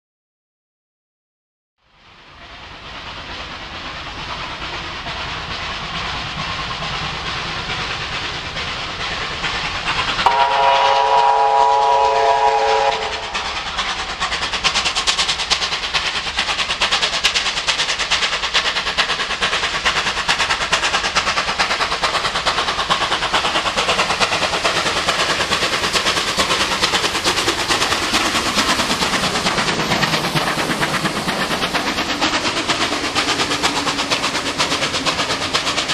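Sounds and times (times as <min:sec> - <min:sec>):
steam locomotive exhaust beats: 0:01.8 - 0:35.9
steam whistle blast: 0:10.2 - 0:13.4.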